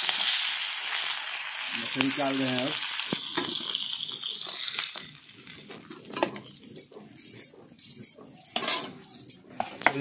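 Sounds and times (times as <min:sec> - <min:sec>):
oil sizzling in a pan: 0:00.0 - 0:09.8
metal spatula scraping a pan: 0:04.1 - 0:10.0.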